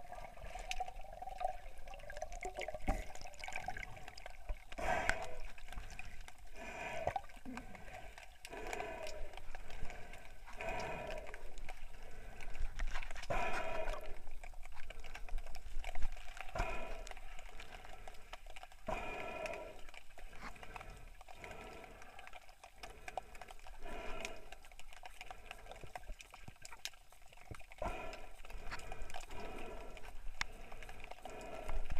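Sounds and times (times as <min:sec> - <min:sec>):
underwater crackle of clicks: 0:00.0 - 0:31.9.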